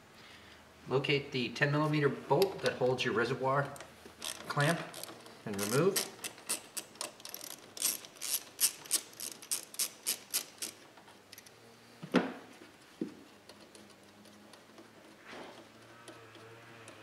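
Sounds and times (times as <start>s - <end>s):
ratchet wrench clicking: 4.2s - 11.5s.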